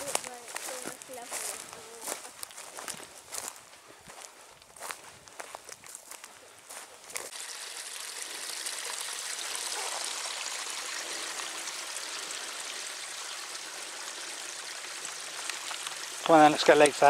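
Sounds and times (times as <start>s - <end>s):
stream running over stones: 0.0s - 3.3s, 6.7s - 17.0s
footsteps on grass: 0.0s - 7.4s.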